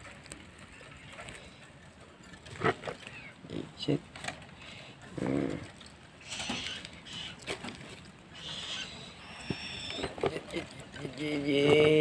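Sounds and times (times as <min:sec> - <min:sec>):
owl hissing: 0:06.2 - 0:07.6, 0:08.3 - 0:10.2.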